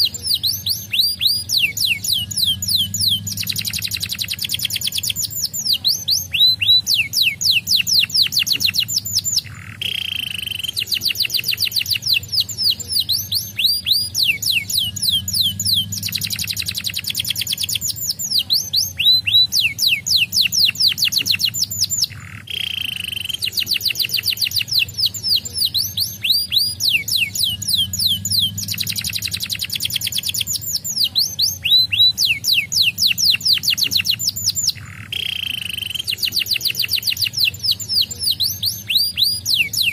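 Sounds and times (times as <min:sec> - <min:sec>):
canary singing: 0:00.0 - 0:39.9
faint steady low hum: 0:00.0 - 0:39.9.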